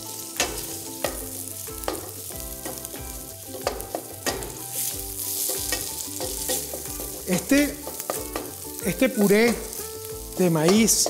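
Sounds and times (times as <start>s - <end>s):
food sizzling in a skillet: 0.0s - 11.0s
wooden spatula scraping a pan: 4.7s - 8.4s.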